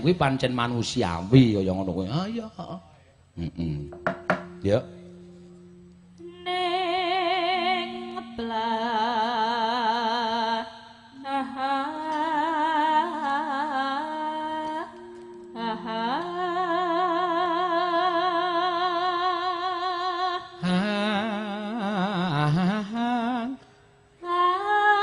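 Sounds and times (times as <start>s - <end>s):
low steady tone: 3.4s - 25.0s
woman singing with vibrato: 5.6s - 25.0s.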